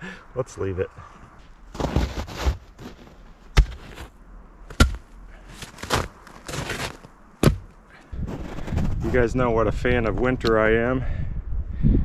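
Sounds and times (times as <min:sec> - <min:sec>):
sharp knocks of wooden boards: 0:07.4 - 0:07.7.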